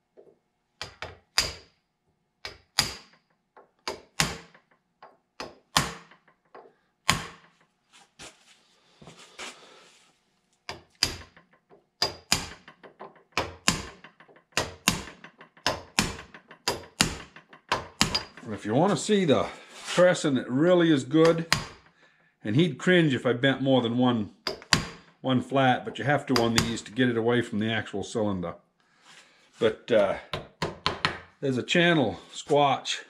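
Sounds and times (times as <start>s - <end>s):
hammer tapping on steel punch: 0.8s - 1.7s, 2.4s - 7.4s, 10.7s - 11.4s, 12.0s - 18.4s, 21.2s - 21.9s, 24.4s - 25.1s.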